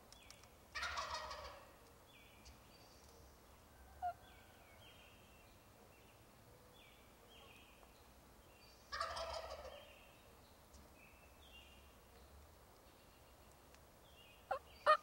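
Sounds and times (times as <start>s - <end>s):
wild turkey gobbling: 0.8s - 1.7s, 4.0s - 4.2s, 8.9s - 9.9s.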